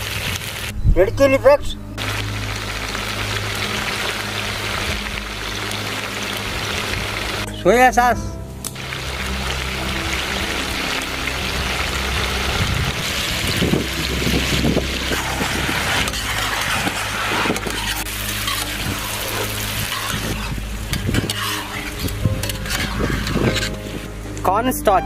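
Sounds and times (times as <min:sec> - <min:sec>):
chicken sizzling in hot oil: 0:00.0 - 0:00.8, 0:02.0 - 0:07.5, 0:08.7 - 0:24.1
metal tongs scraping and knocking: 0:20.9 - 0:23.8.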